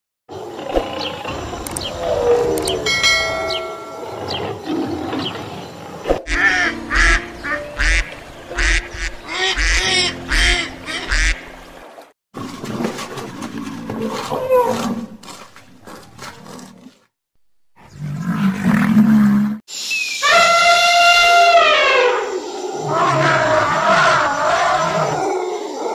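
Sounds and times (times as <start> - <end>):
duck quacking: 6.3 - 11.5.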